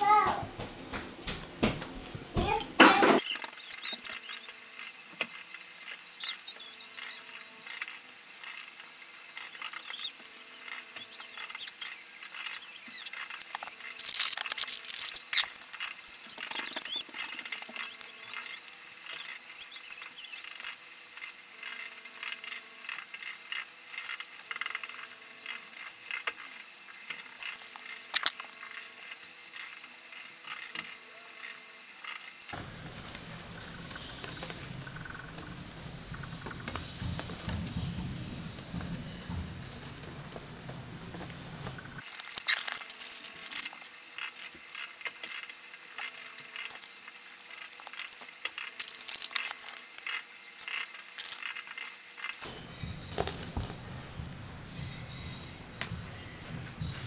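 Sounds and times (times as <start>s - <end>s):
metal rings clicking and squeaking: 3.2s - 32.6s, 42.0s - 52.5s
plastic bag crinkling: 9.4s - 20.4s, 27.2s - 29.0s, 42.0s - 52.5s.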